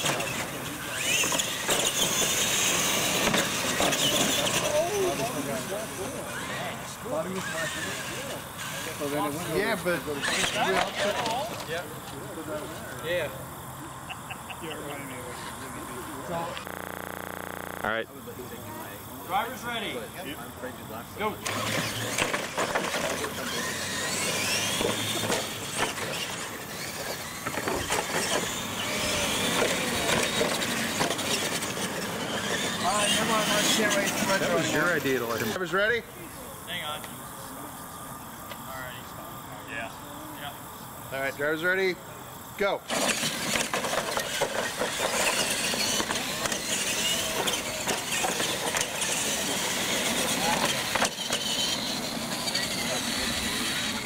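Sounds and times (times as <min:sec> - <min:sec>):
sharp knocks of trucks bouncing: 0:00.0 - 0:04.6, 0:42.9 - 0:52.6
tyre and drivetrain rush: 0:00.0 - 0:12.8, 0:14.9 - 0:17.8, 0:21.2 - 0:35.6, 0:42.9 - 0:54.0
toy truck motors whining: 0:00.0 - 0:54.0.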